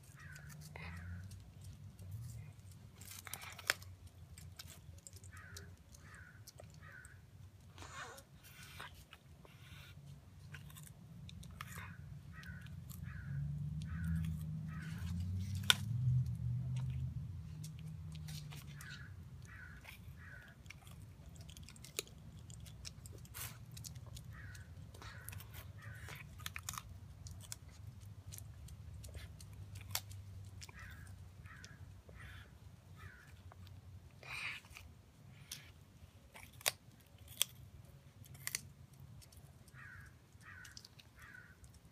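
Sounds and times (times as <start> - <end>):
tortoise crunching carrot: 0.0 - 41.9
crows cawing: 5.3 - 7.2, 11.8 - 15.0, 18.8 - 20.6, 24.3 - 26.2, 30.7 - 33.4, 39.7 - 41.6.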